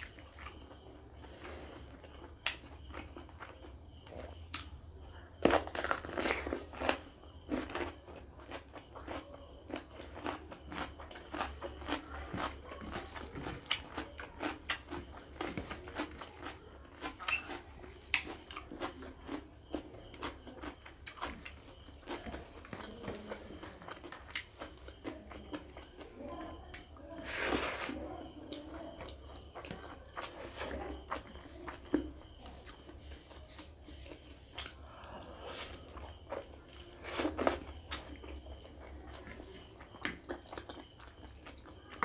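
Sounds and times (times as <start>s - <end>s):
crunchy bites into cucumber: 5.4s - 7.9s, 37.0s - 38.1s
wet chewing clicks: 5.4s - 27.0s, 28.5s - 42.0s.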